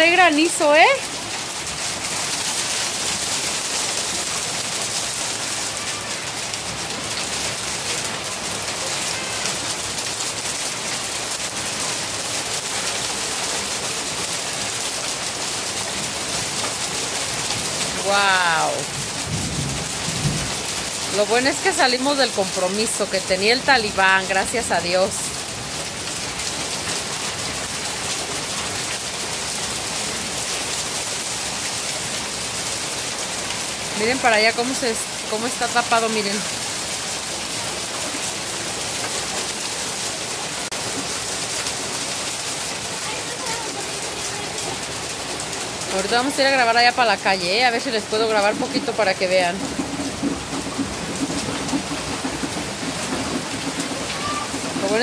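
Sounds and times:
hail pattering: 0.0 - 55.0
heavy rain hissing: 0.0 - 55.0
water pouring off roof: 0.0 - 55.0.

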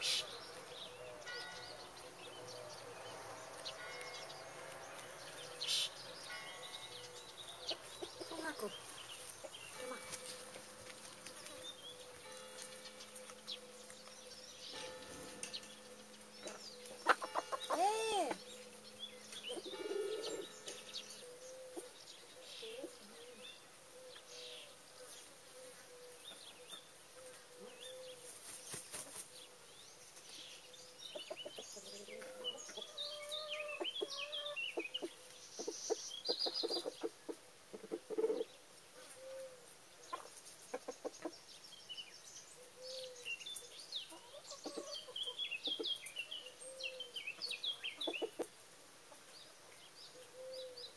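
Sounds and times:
hens clucking: 16.4 - 18.4, 31.2 - 39.2, 48.0 - 48.5.

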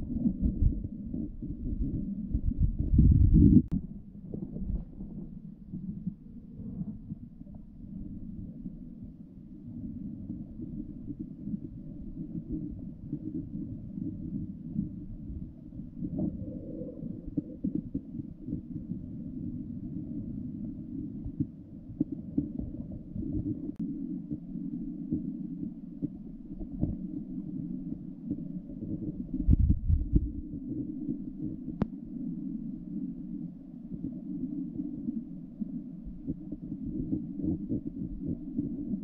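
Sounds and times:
muffled underwater river rumble: 0.0 - 39.0
faint underwater clicks: 27.8 - 32.3.

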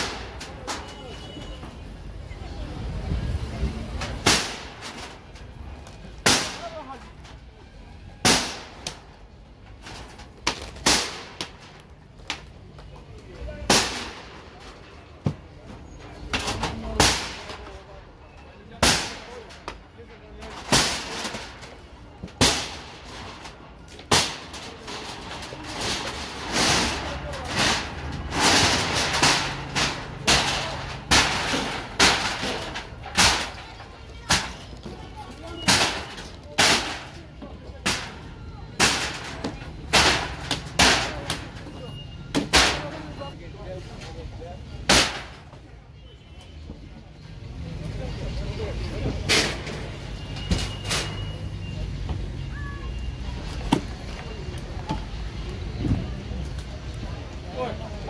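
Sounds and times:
sledgehammer blows: 20.5 - 37.2, 37.8 - 43.2
demolition bangs and knocks: 20.5 - 43.1.

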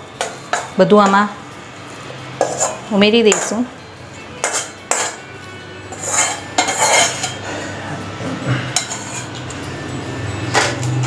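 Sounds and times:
spatula scraping a steel pan: 2.4 - 3.5, 4.4 - 5.2, 5.9 - 9.4
pan rim clinking against plate: 4.4 - 5.2, 5.9 - 7.4.

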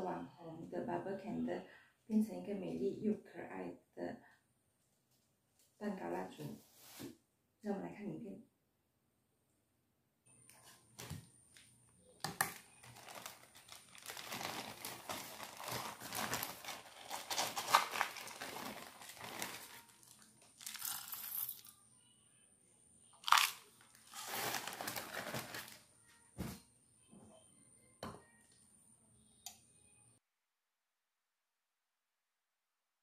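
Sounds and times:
plastic bag crinkling: 12.2 - 21.7, 23.2 - 25.8
wax flakes pouring into metal pot: 12.9 - 21.7, 24.1 - 25.8.

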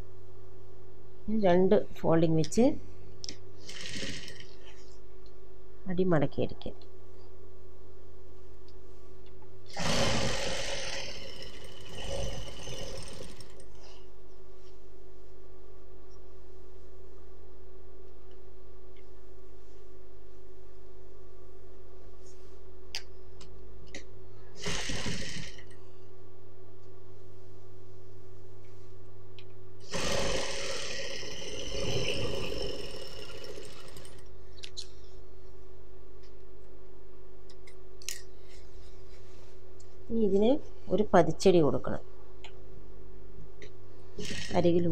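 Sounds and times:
sewing machine stitching: 3.6 - 4.6, 9.7 - 13.8, 24.6 - 25.7
sewing machine motor hum: 3.6 - 4.7, 9.7 - 14.0, 24.6 - 25.8, 29.8 - 34.3.

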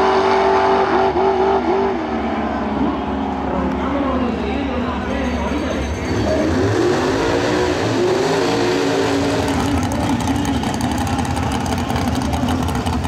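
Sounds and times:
race car engine revving and idling: 0.0 - 13.0.

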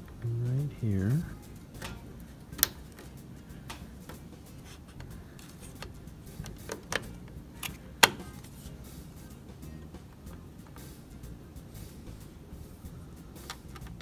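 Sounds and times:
plastic and metal parts clicking: 4.9 - 8.5.

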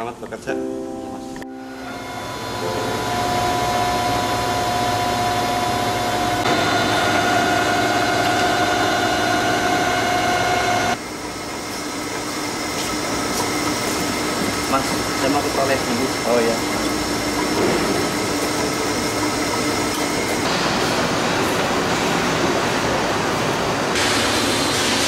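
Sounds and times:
drill press motor whining: 1.8 - 11.0.

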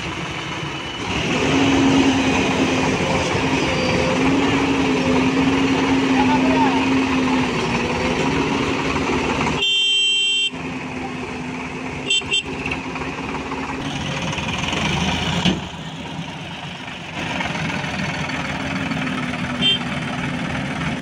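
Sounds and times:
diesel engines running: 0.0 - 21.0
vehicle horn: 9.6 - 10.6, 12.0 - 12.7, 19.5 - 20.0.

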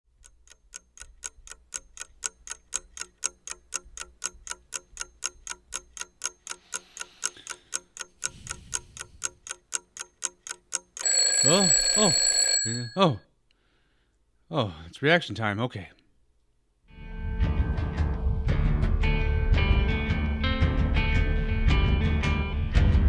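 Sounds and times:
clock ticking fast: 0.2 - 13.0
alarm clock ringing: 11.0 - 13.1.

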